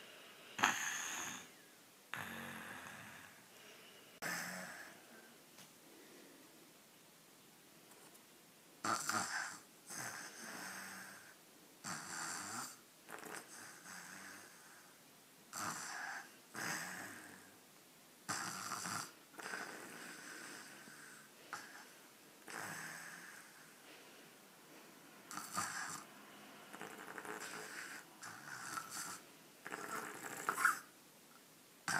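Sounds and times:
toddler snoring: 0.0 - 3.4, 4.2 - 5.3, 8.8 - 17.6, 18.3 - 23.8, 25.3 - 26.1, 26.7 - 30.9.

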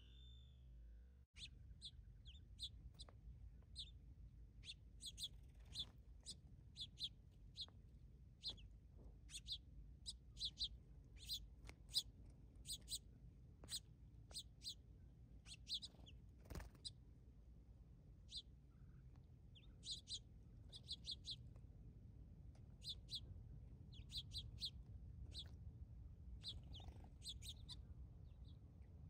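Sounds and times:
small songbirds chirping: 0.0 - 29.0.

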